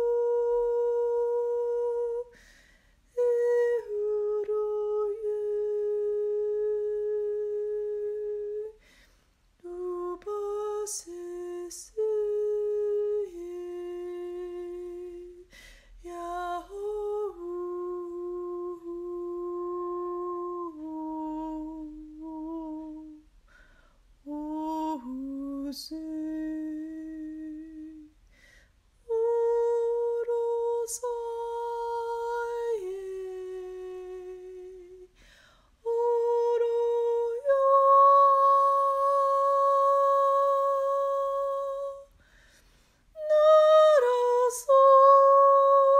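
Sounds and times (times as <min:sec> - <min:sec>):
woman humming long notes: 0:43.2 - 0:45.9.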